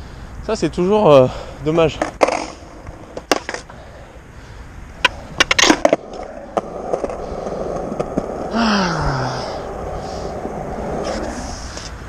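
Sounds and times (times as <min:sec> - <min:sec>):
skateboard wheels rolling: 0:01.9 - 0:04.2, 0:04.9 - 0:12.0
skateboard hitting the ground: 0:02.0 - 0:03.7, 0:05.0 - 0:08.4.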